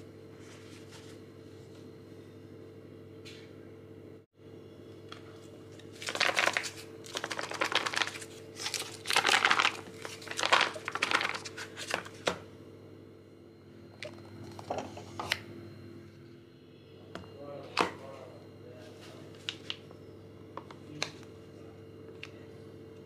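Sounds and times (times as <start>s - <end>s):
steady low hum: 0.0s - 23.0s
plastic film crinkling: 5.8s - 12.2s.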